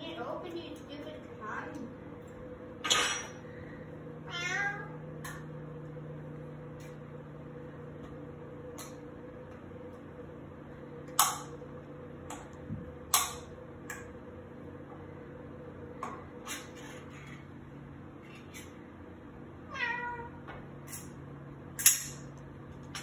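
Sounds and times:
faint steady hum: 0.0 - 23.0
utensil clinking on dishes: 2.8 - 3.4
cat meowing: 4.2 - 5.0, 19.7 - 20.4.

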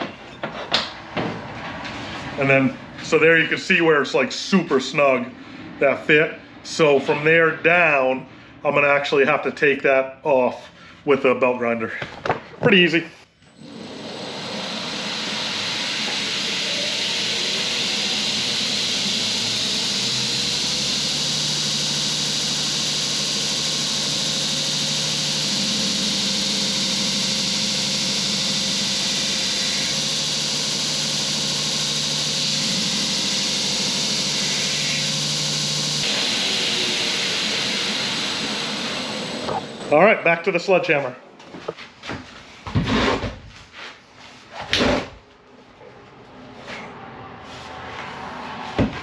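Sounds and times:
belt grinder sanding wood: 13.6 - 40.0.

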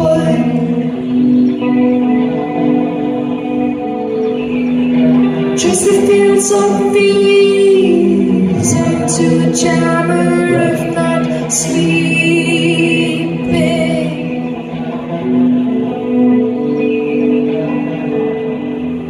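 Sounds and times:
live band music: 7.6 - 19.0.

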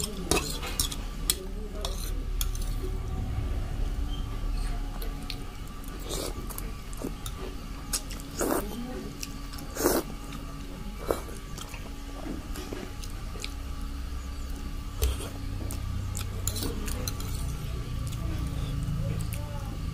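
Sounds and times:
person chewing: 5.0 - 13.7.

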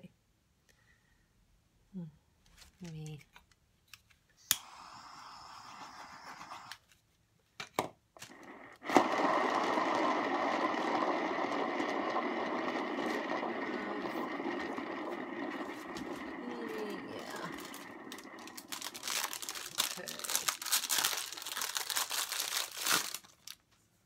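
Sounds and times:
turntable bearing whirring: 8.2 - 19.3.

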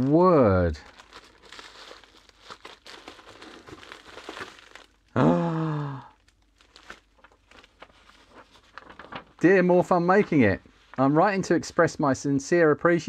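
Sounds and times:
plastic bags crinkling: 0.0 - 5.2, 5.8 - 9.5.

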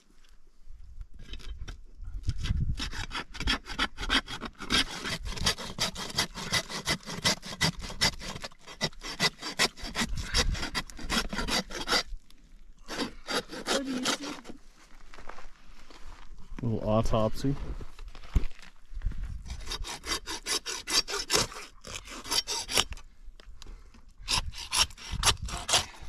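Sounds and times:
hand saw cutting bone: 2.4 - 12.1, 12.9 - 14.5, 19.4 - 23.0, 24.2 - 26.0.

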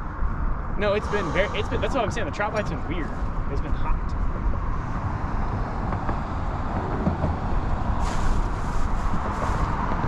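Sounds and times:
road traffic rumble: 0.0 - 10.0
tyres hissing: 0.8 - 3.3.

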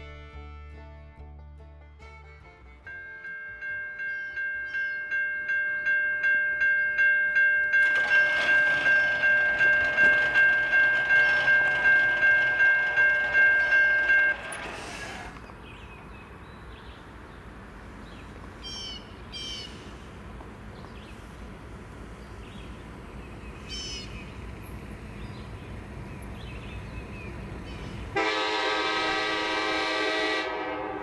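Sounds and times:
crossing warning bell ringing: 2.9 - 15.4.

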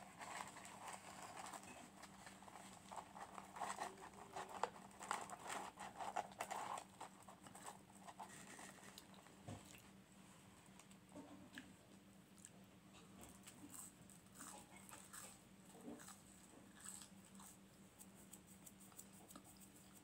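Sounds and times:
low steady hum: 0.0 - 20.0
chewing fries: 12.3 - 20.0.

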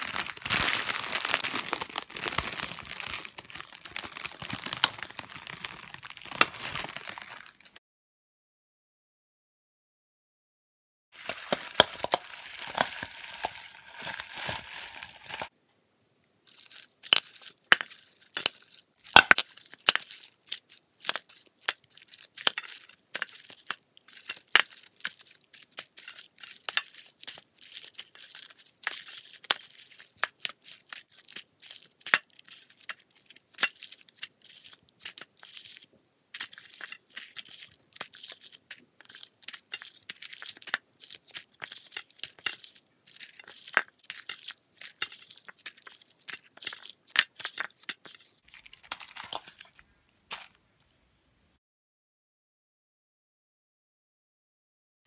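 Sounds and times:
cellophane wrappers crinkling: 0.0 - 7.8, 11.2 - 15.5, 16.5 - 50.6
sweets dropped into plastic bowl: 11.2 - 15.5.

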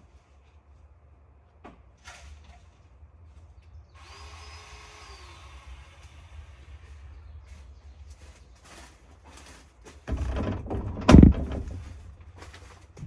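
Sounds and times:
knocks: 10.1 - 12.1.

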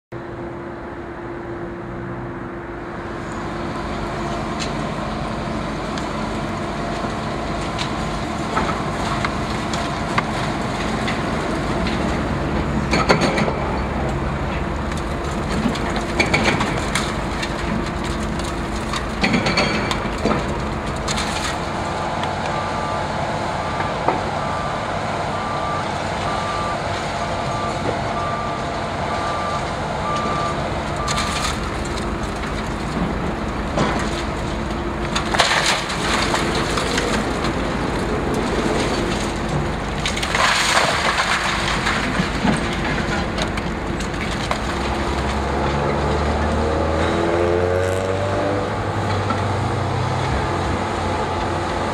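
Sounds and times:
excavator diesel engine running: 0.2 - 51.9
concrete breaking and falling: 14.9 - 21.8, 31.0 - 47.0
reversing alarm beeping: 22.5 - 31.4.

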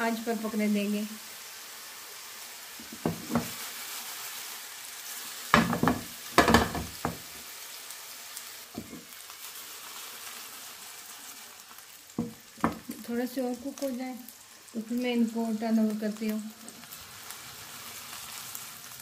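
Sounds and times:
patties sizzling in oil: 0.0 - 19.0
pan knocking and scraping on grate: 2.8 - 3.6, 5.6 - 7.2, 8.8 - 9.0, 12.2 - 12.9.

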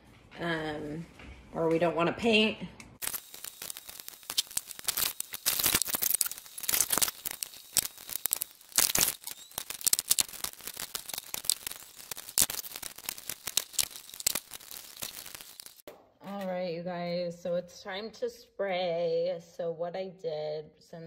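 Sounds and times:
tape ripping and crinkling: 3.0 - 15.8.

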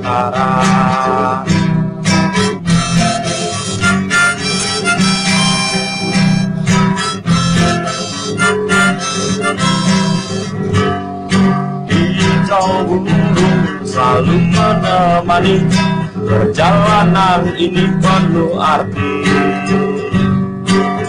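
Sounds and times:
strummed acoustic guitar: 0.0 - 21.0
harmonica melody: 1.4 - 18.8.

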